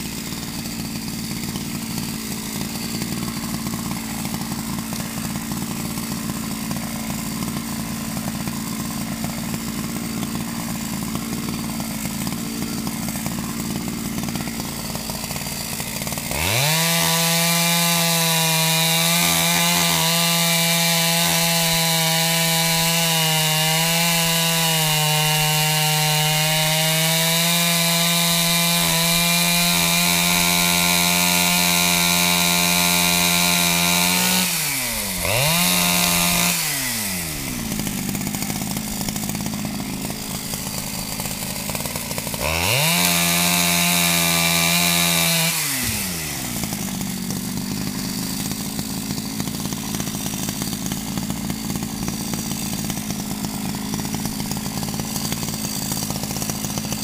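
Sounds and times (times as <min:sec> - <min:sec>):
chainsaw cutting tree trunk: 0:00.0 - 0:57.0
chainsaw idling and revving: 0:00.0 - 0:57.0.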